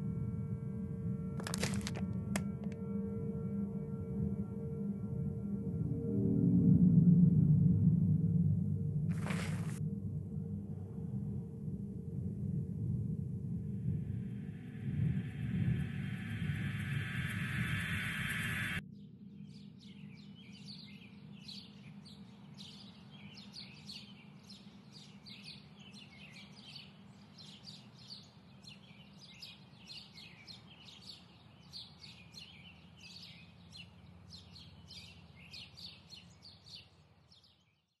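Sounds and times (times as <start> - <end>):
faint low rumble: 0.0 - 19.3.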